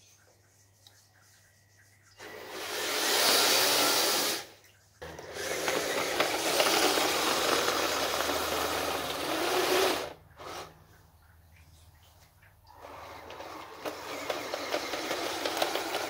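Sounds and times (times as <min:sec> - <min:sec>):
electric motor whirring: 0:02.2 - 0:10.7, 0:12.8 - 0:16.0.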